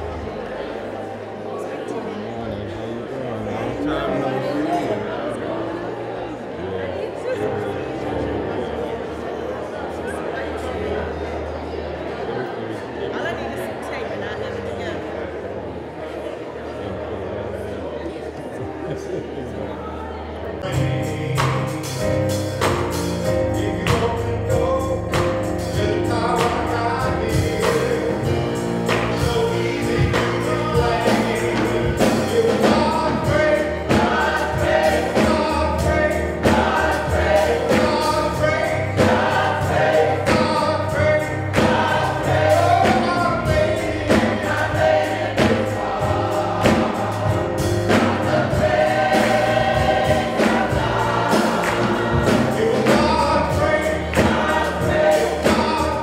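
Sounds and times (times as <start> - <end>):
choir singing gospel: 0.0 - 56.0
steady beat with instrumental backing: 20.7 - 56.0.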